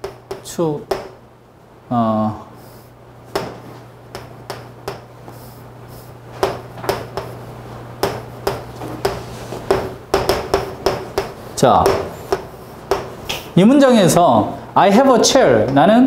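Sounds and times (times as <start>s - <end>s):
chalk tapping on chalkboard: 0.0s - 1.2s, 3.3s - 7.4s, 8.0s - 13.5s.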